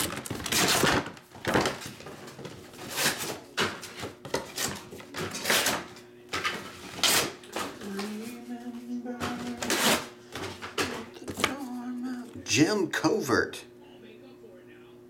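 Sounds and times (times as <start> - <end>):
packaging rustling and knocking: 0.0 - 5.5
low steady hum: 5.0 - 15.0.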